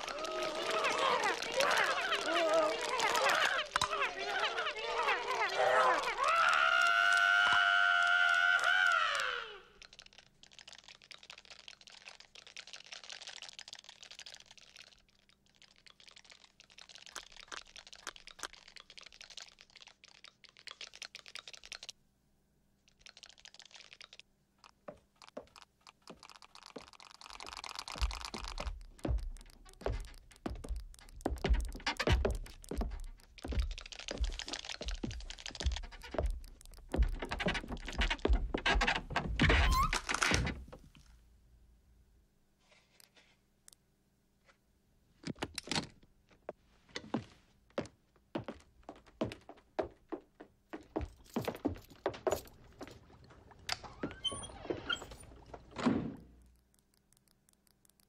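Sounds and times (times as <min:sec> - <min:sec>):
rapid clicking and tapping: 0:22.9 - 0:40.0, 0:56.4 - 0:58.0.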